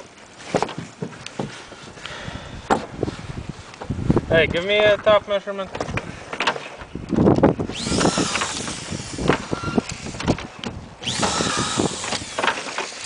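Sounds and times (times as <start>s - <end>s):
power drill driving screws: 7.7s - 13.0s.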